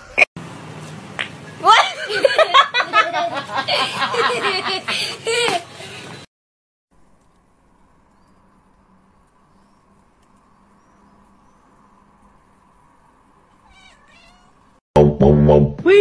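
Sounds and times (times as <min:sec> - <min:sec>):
cat meowing: 0:13.6 - 0:14.8.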